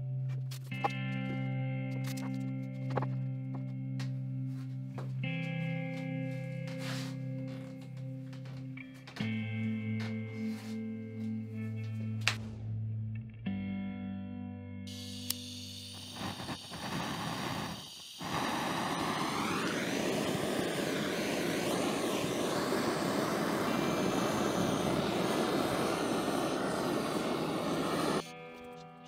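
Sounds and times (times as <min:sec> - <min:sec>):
gas torch sputtering: 0:06.6 - 0:08.6, 0:14.9 - 0:28.3
gas torch flame hissing: 0:06.7 - 0:08.5, 0:14.9 - 0:28.3
gas torch ignition click: 0:14.9 - 0:28.2.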